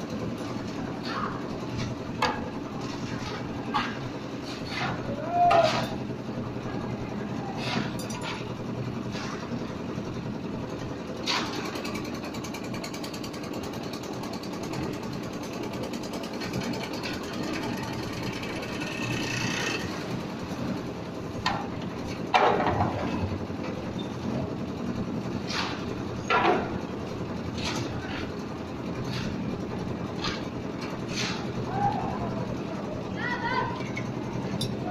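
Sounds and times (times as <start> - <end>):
concrete mixer machinery droning: 0.0 - 34.9
people shouting: 5.0 - 6.0, 31.7 - 32.5.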